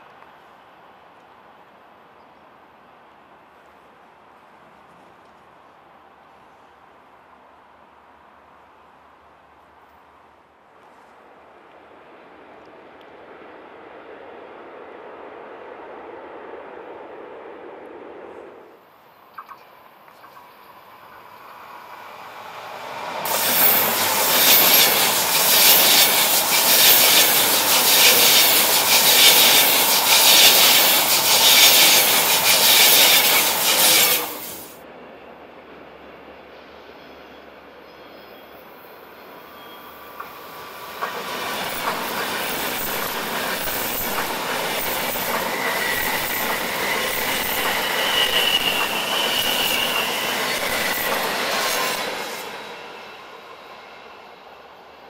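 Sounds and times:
train passing with rush of wheels: 0.0s - 55.0s
train wheel squeal: 22.8s - 34.8s, 36.4s - 55.0s.

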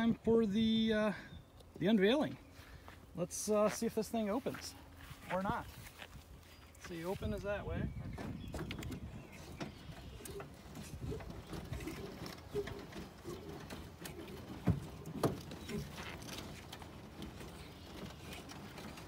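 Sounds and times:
hand crank clicking and creaking: 8.6s - 19.0s.

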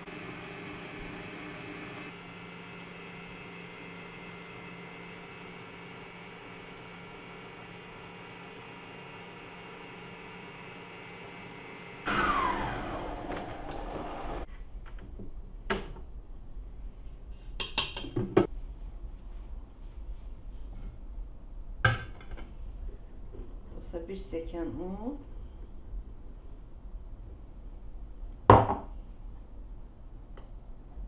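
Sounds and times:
stand mixer humming: 0.0s - 14.5s
motor winding down: 12.0s - 14.5s.

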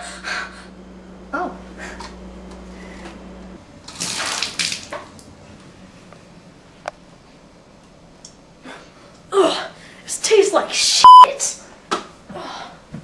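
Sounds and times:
water splashing on hard floor: 3.9s - 5.2s.

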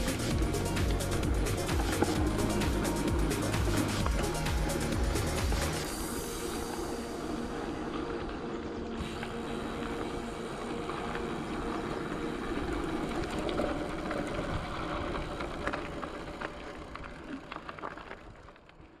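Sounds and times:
vehicle humming: 0.0s - 17.8s.

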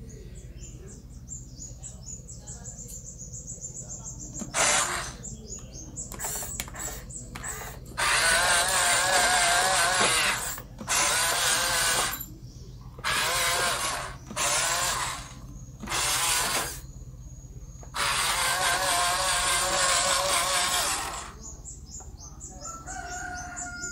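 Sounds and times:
electric motor whining: 4.4s - 5.2s, 6.1s - 12.3s, 13.0s - 16.9s, 17.8s - 21.4s.

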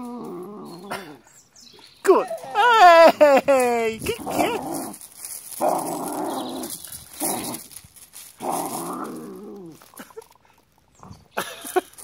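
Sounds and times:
dog growling: 0.0s - 1.2s, 4.1s - 7.8s, 8.4s - 10.0s.

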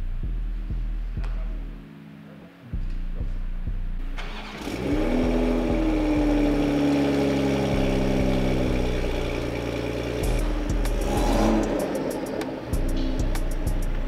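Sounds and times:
car engine starting and idling: 3.0s - 14.0s.

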